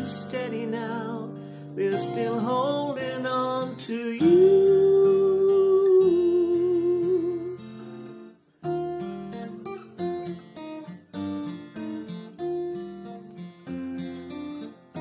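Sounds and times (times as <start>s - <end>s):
man singing: 0.0s - 7.7s
acoustic guitar chords: 0.0s - 15.0s.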